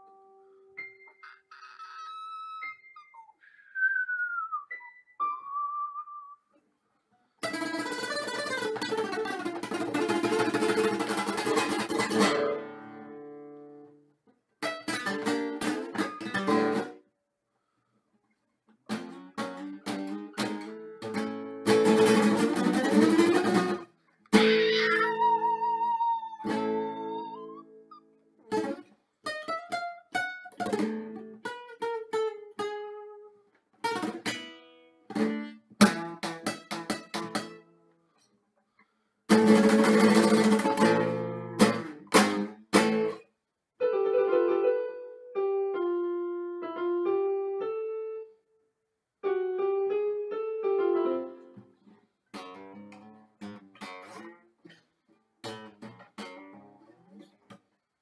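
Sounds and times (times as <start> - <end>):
acoustic guitar strumming and plucking: 7.4 - 13.6, 14.6 - 17.0, 18.9 - 25.6, 26.4 - 27.8, 28.5 - 33.2, 33.8 - 37.7, 39.3 - 43.2, 52.3 - 57.7.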